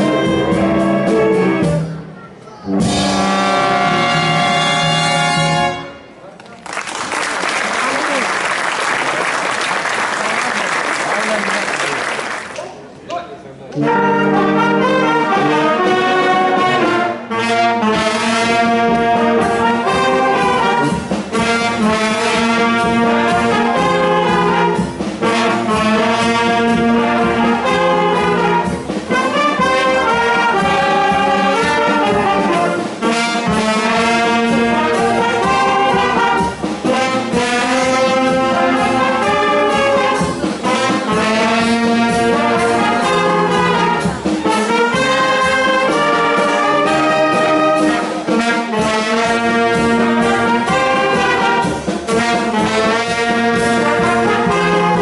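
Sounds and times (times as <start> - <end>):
brass band playing: 0.0 - 6.2, 6.8 - 12.6, 13.7 - 55.0.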